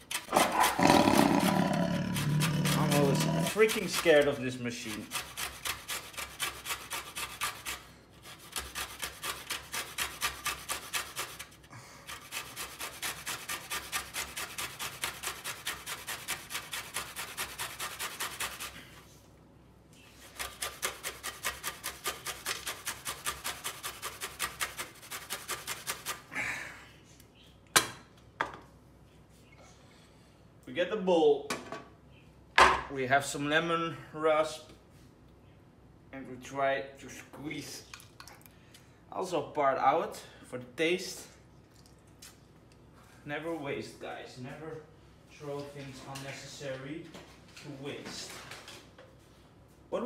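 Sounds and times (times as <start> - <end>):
lemon rasping on a grater: 2.1 - 18.8, 20.1 - 26.3.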